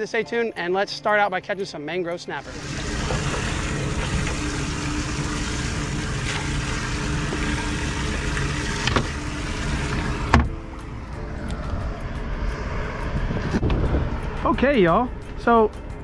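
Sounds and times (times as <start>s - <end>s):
water splashing and churning: 2.4s - 10.6s
wind on microphone: 11.4s - 15.4s.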